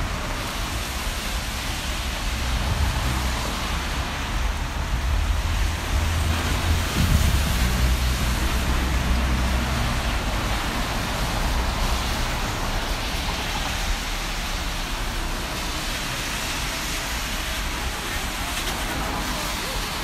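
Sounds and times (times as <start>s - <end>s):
traffic hiss on wet roads: 0.0s - 20.0s.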